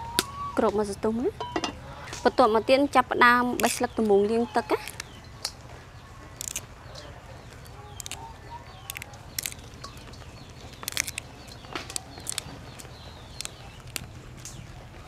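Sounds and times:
vegetable stems snapping: 3.6s - 3.8s, 6.4s - 7.1s, 8.0s - 8.2s, 8.8s - 14.6s.

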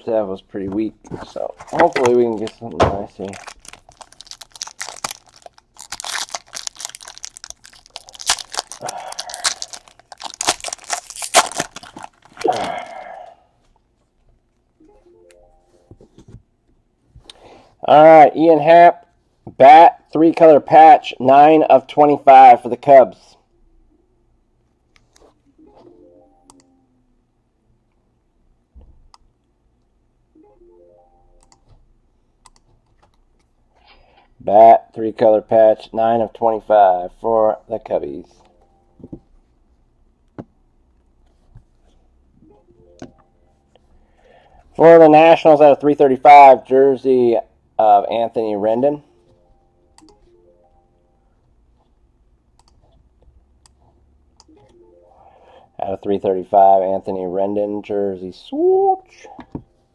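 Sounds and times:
foil wrapper tearing and crinkling: 3.2s - 12.8s
faint background music: 42.3s - 51.8s, 54.4s - 59.9s.

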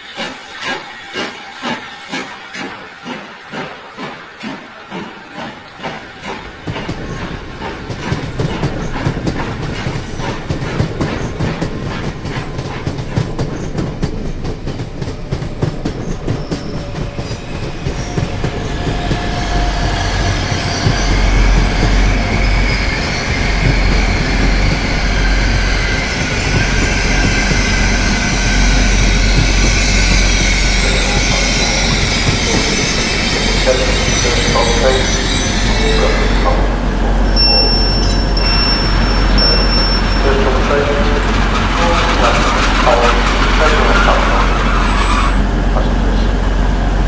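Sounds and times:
train wheels clickety-clack: 0.0s - 36.8s, 37.4s - 46.3s
train rumble: 0.0s - 47.0s
high wheel squeal: 15.9s - 45.5s.

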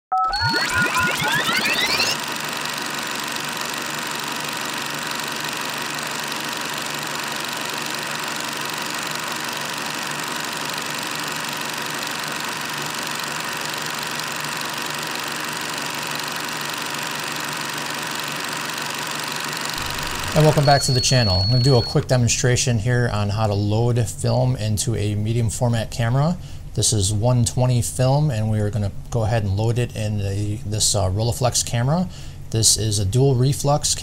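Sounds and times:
mechanical running noise with hiss: 1.9s - 22.0s.

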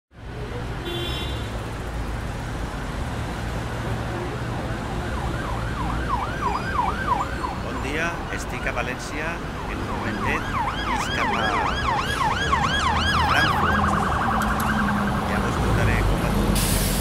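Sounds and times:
low traffic rumble: 0.1s - 17.0s
emergency siren wailing: 4.6s - 16.6s.

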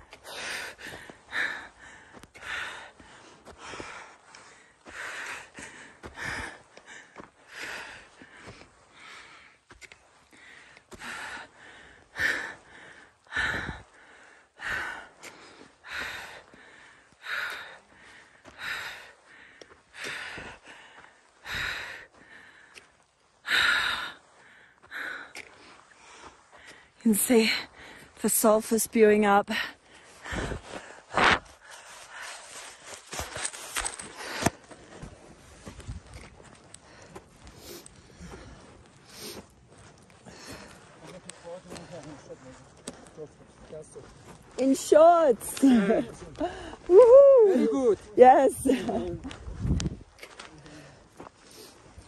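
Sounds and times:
person breathing hard: 0.0s - 28.2s, 29.6s - 42.2s, 46.3s - 47.0s.

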